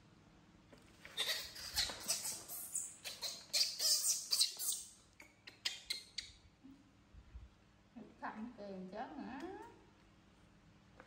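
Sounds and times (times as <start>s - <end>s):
baby monkey screaming: 1.1s - 6.4s
monkey squeaks: 1.1s - 6.4s.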